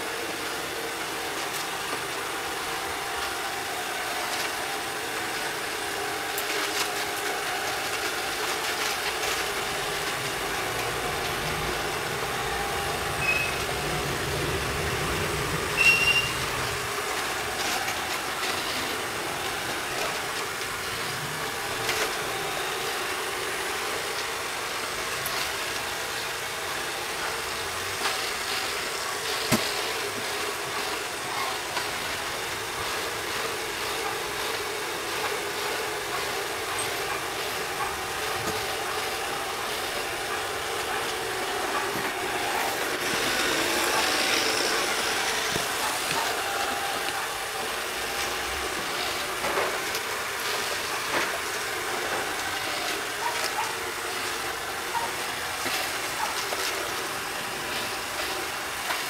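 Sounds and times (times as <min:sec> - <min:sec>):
robot vacuum whirring: 0:00.0 - 0:59.0
short high beeps: 0:13.2 - 0:13.6, 0:15.8 - 0:16.4.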